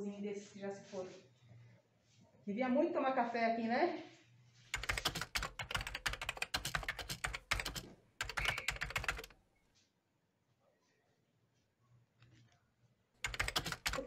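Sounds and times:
rapid sharp clicks: 4.8 - 9.4, 13.2 - 14.0.

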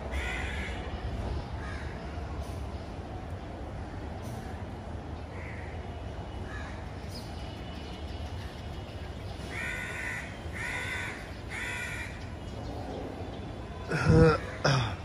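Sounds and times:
crow cawing: 0.1 - 0.8, 9.5 - 12.2.

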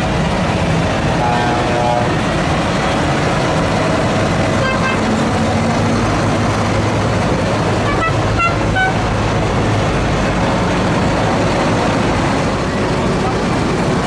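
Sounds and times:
diesel tractor engines droning: 0.0 - 14.0
high horn toots: 1.2 - 2.2, 4.6 - 5.2, 7.8 - 9.1.

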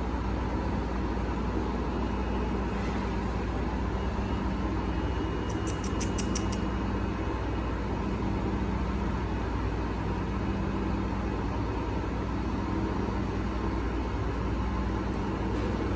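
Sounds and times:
low machine hum: 0.0 - 15.9
faint high ticks: 5.5 - 6.6.

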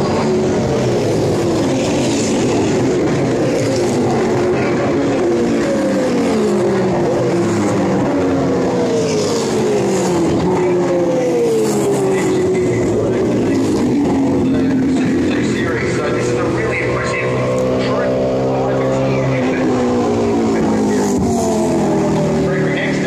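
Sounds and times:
race car engines: 0.0 - 23.0.

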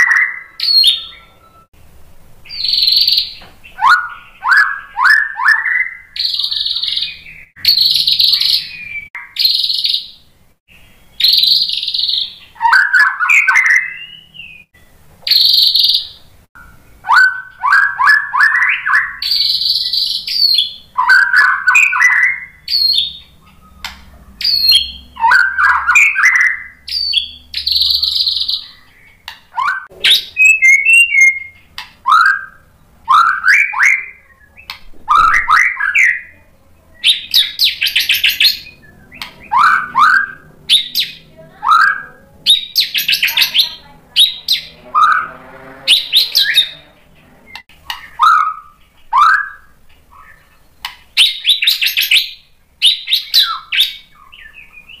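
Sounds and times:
bird singing: 0.0 - 1.8, 2.4 - 55.0
rising whistled notes: 16.6 - 36.2, 37.0 - 50.4.

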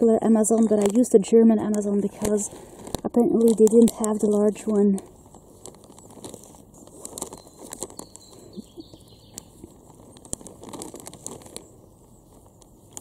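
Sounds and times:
plastic bag crinkling: 0.0 - 13.0
faint bird chirps: 7.3 - 9.7.

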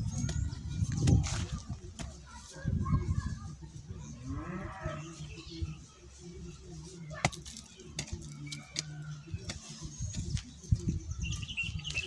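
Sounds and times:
hoe chopping soil: 7.2 - 10.6.

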